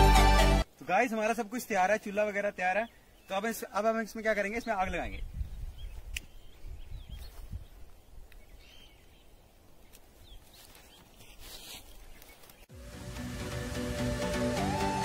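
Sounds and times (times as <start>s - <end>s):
faint bird chirps: 4.5s - 12.7s
wind rumble on microphone: 4.9s - 8.6s.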